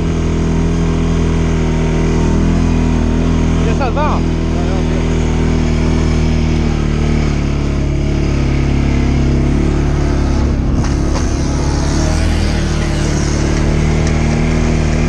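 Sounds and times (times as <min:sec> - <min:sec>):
atv engine running: 0:00.0 - 0:15.0.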